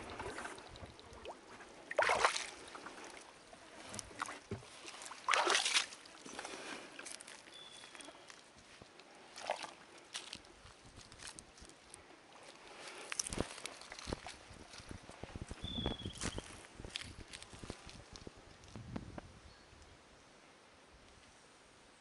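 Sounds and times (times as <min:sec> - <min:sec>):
footsteps crunching leaf litter: 0:04.6 - 0:15.0, 0:16.0 - 0:18.7
footsteps scuffing on soil: 0:16.0 - 0:18.3.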